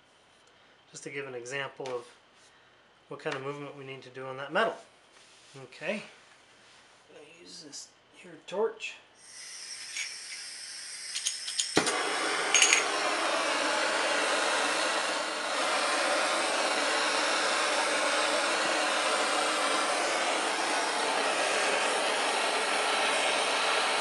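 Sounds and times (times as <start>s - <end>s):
gas torch hissing: 9.2s - 24.0s.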